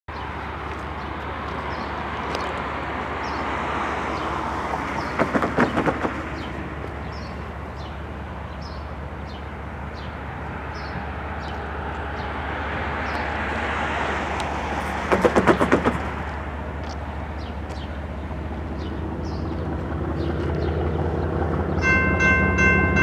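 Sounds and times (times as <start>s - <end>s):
steady outdoor rumble: 0.1s - 23.0s
small birds chirping: 5.0s - 12.4s, 16.8s - 21.4s
car tyres clattering over rails: 14.8s - 16.5s.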